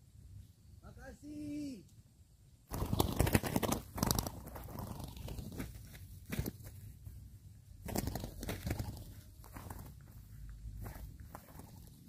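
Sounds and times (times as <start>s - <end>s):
dry leaves and grass rustling: 2.7s - 12.0s.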